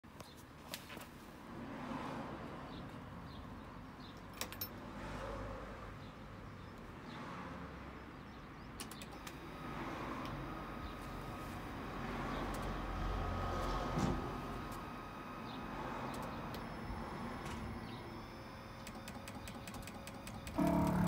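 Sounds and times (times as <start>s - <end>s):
faint steady tone: 14.3s - 21.0s.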